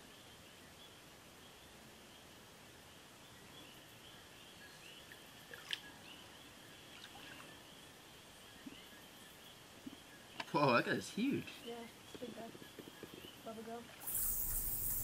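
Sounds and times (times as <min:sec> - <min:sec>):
water drips and splashes: 0:05.1 - 0:05.9, 0:06.9 - 0:07.5
high-pitched wildlife chorus: 0:07.2 - 0:15.0.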